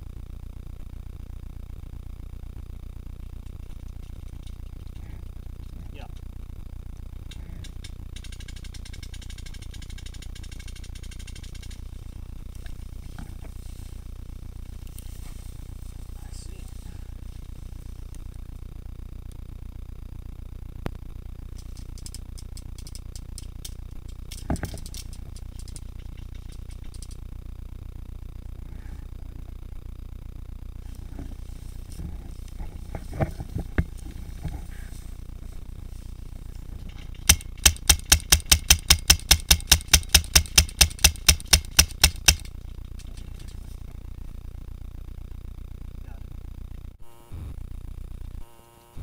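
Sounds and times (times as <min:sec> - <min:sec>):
low rumble: 0:00.0 - 0:38.0
gear ticking and rattling: 0:03.4 - 0:13.8, 0:21.4 - 0:27.4, 0:30.9 - 0:44.2
sharp click: 0:37.1 - 0:42.5
paintball marker firing: 0:37.2 - 0:42.6.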